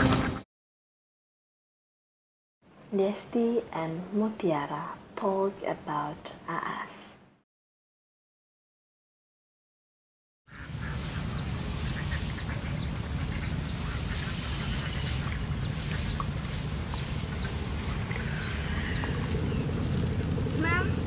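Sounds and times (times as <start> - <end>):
ducks quacking: 10.5 - 19.6
bird chirps: 10.5 - 19.8
lower bird calls: 10.5 - 21.0
steady low rumble: 10.5 - 21.0.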